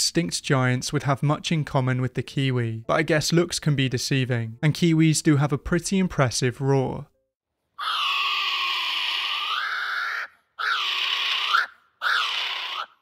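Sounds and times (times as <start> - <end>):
kiwi bird calling: 7.8 - 13.0.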